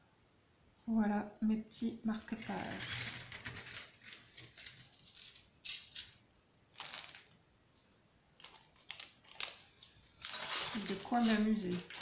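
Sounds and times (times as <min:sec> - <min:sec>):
metal bookmarks clinking: 0:08.4 - 0:12.0.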